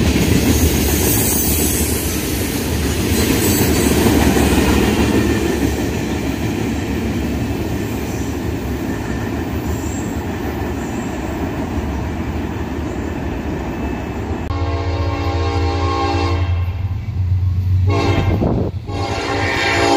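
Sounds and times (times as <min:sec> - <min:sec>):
freight train rolling past: 0:00.0 - 0:19.9
locomotive horn: 0:14.5 - 0:16.8, 0:17.8 - 0:19.9.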